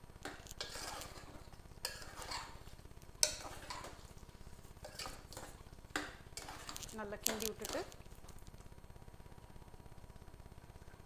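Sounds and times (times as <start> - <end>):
utensil scraping and knocking pot: 0.2 - 8.0.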